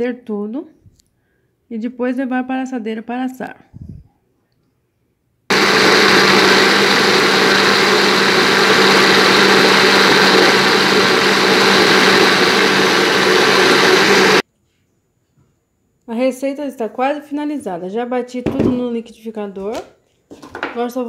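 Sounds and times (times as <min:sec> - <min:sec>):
blender motor running: 0:05.5 - 0:14.4.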